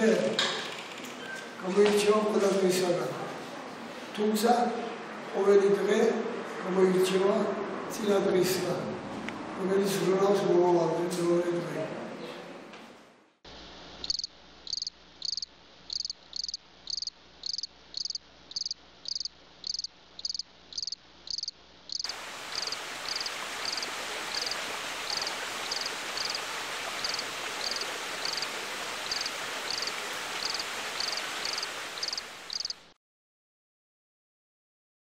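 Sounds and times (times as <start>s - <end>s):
insect chirping: 14.0s - 32.8s
rushing hiss: 22.1s - 32.6s.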